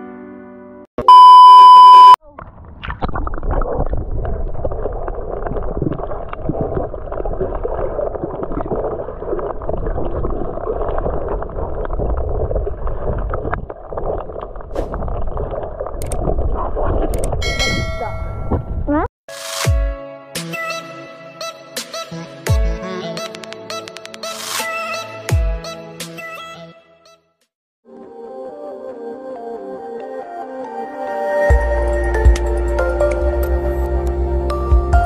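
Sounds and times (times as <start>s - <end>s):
loud electronic beep: 1.0s - 2.2s
muffled underwater rushing water: 2.4s - 17.4s.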